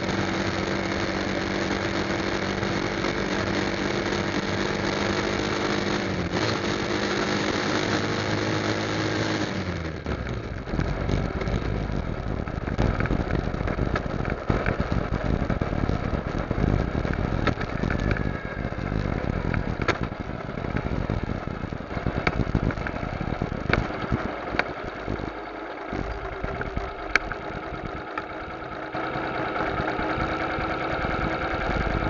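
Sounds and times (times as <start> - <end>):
motorcycle engine running: 0.0 - 32.0
wind on microphone: 10.7 - 25.3.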